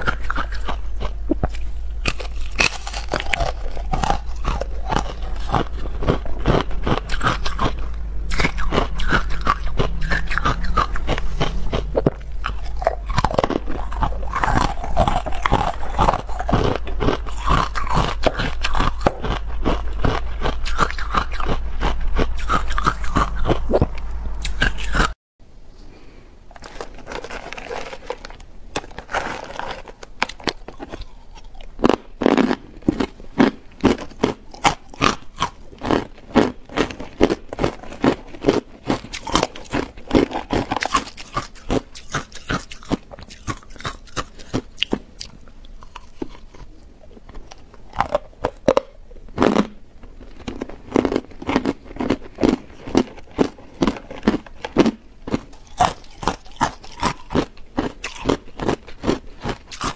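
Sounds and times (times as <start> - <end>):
crunching ice chunks: 2.0 - 7.3.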